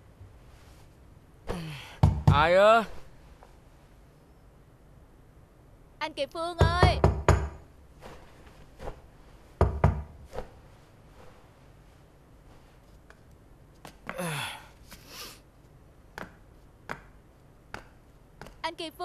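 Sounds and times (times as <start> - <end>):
breathy voice sound: 1.5 - 2.0, 14.1 - 15.2
knocking on a door: 2.0 - 2.5, 6.6 - 7.7, 9.6 - 10.2.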